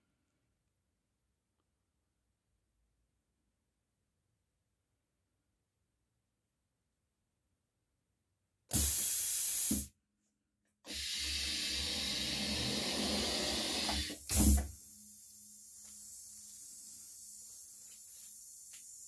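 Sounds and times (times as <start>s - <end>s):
heat press air hissing: 8.7s - 9.9s, 10.9s - 19.0s
short loud air blast: 8.7s - 9.9s, 14.0s - 15.0s.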